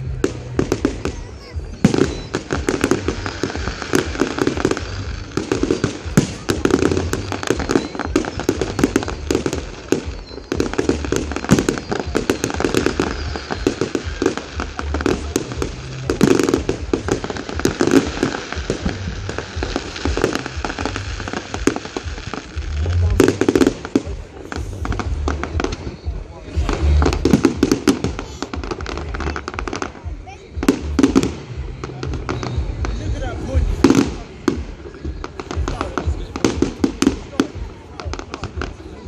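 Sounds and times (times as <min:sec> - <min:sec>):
fireworks bangs and crackling: 0:00.0 - 0:39.0.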